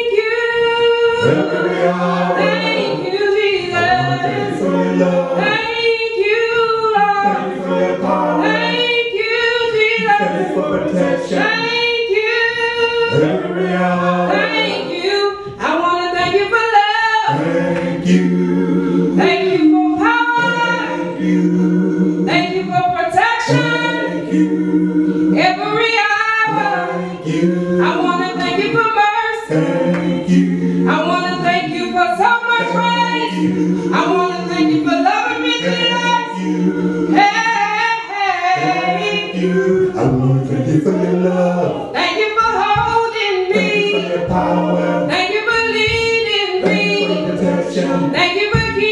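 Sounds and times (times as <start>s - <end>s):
woman singing gospel solo: 0.0s - 7.5s, 8.4s - 10.5s, 11.2s - 13.4s, 14.2s - 17.4s, 19.2s - 21.4s, 22.3s - 24.1s, 25.4s - 36.4s, 37.1s - 39.4s, 41.9s - 44.4s, 45.0s - 48.9s.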